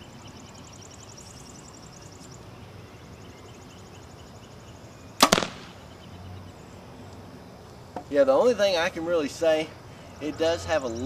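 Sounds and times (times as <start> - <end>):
bow string snap: 5.2 - 5.7
arrow hitting target: 5.2 - 5.8.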